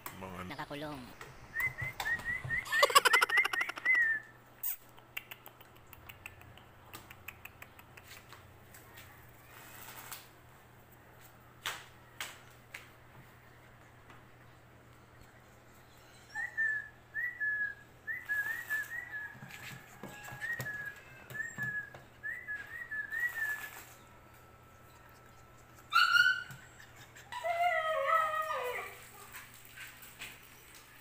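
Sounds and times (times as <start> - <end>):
puppies whimpering: 25.4 - 29.1
puppy yelp: 25.9 - 29.4.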